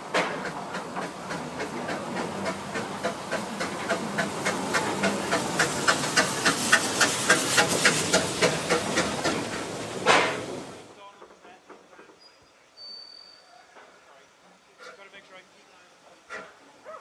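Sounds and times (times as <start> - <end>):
steam locomotive chuffing: 0.0 - 15.2
steam hissing: 0.0 - 16.8.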